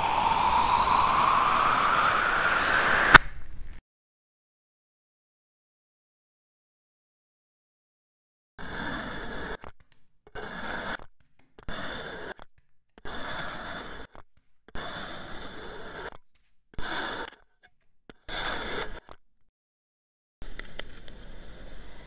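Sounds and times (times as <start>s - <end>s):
knife scraping through sand: 10.3s - 12.4s, 13.0s - 16.2s, 16.8s - 17.5s, 18.1s - 19.2s.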